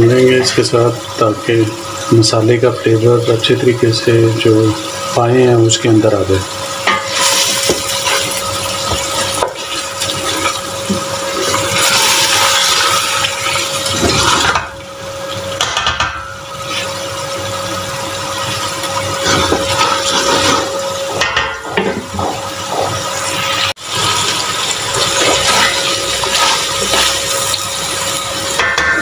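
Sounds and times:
steady hum: 0.0 - 25.0
meat sizzling in a pot: 0.0 - 29.0
wooden spatula scraping: 19.2 - 20.8.

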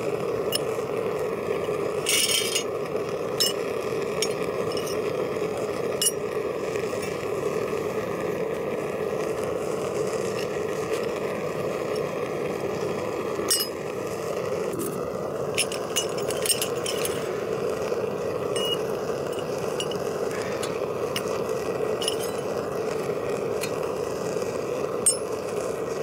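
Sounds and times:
furnace burner rushing: 0.0 - 26.0
metal clinking against crucible: 2.1 - 2.8, 3.4 - 5.1, 6.0 - 6.3, 13.5 - 13.8, 15.5 - 17.3, 18.5 - 22.6, 25.0 - 25.4.

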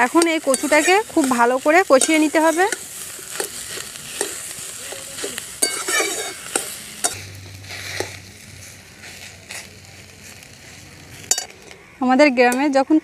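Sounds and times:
metal spatula scraping wok: 0.0 - 9.6
hot oil sizzling: 0.0 - 13.0.

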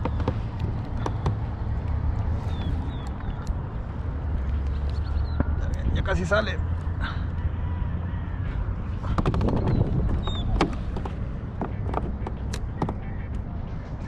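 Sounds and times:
wind rumbling on microphone: 8.1 - 14.0.

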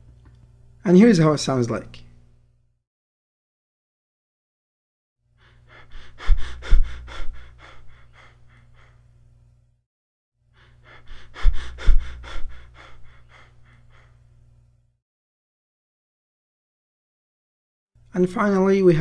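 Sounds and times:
quick breathing: 5.4 - 9.1, 10.6 - 14.3.

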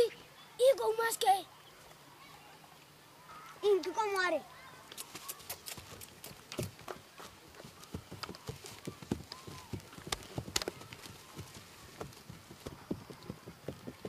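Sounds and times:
horse hooves clopping on dirt: 5.0 - 14.0.

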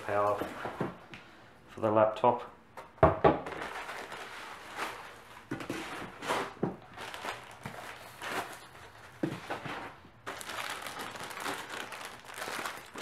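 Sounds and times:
plastic wrapping crinkling: 3.4 - 13.0.

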